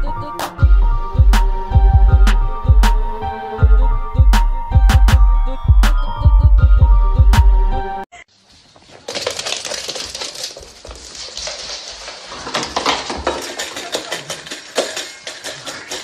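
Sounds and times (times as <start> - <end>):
metal food bowl clattering: 8.9 - 16.0
dog claws clicking on wood floor: 9.1 - 16.0.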